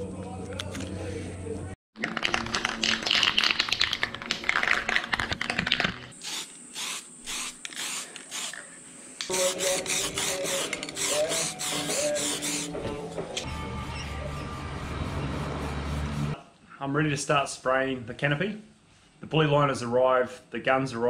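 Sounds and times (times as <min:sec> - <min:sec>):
aerosol can spraying: 0:06.2 - 0:08.6, 0:09.3 - 0:12.7.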